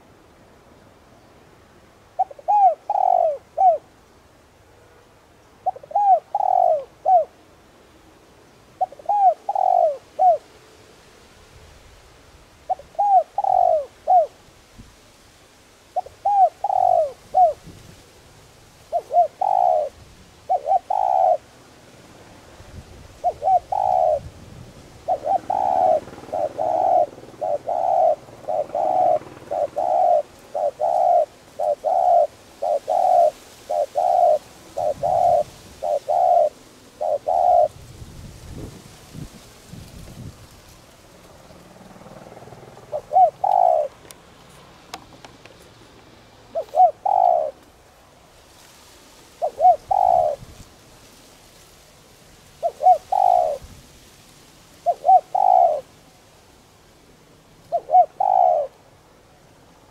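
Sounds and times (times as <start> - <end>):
dove cooing: 2.1 - 3.9, 5.6 - 7.4, 8.8 - 10.5, 12.6 - 14.4, 15.9 - 17.8, 18.8 - 21.6, 23.1 - 37.9, 41.4 - 44.4, 46.4 - 47.9, 49.4 - 50.5, 52.6 - 53.7, 54.8 - 56.0, 57.6 - 59.1.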